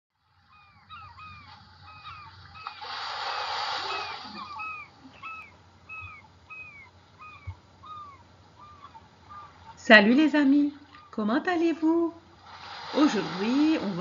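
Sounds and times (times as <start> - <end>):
gulls calling: 0.3 - 14.0
wave breaking: 2.5 - 5.4, 12.4 - 14.0.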